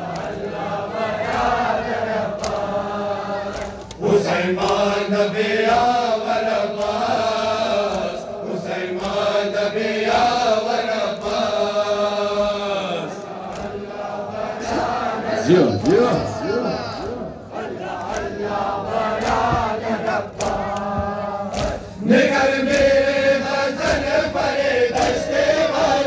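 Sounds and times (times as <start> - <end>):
men chanting a lament: 0.0 - 26.0
hands slapping chests: 0.1 - 0.5, 2.3 - 2.7, 3.5 - 4.0, 4.6 - 5.0, 6.7 - 8.2, 8.9 - 9.3, 11.2 - 11.6, 12.2 - 14.0, 14.6 - 23.0, 23.7 - 25.6.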